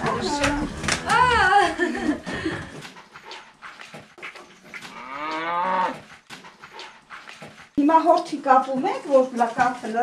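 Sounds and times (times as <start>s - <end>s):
cattle mooing: 4.9s - 6.0s.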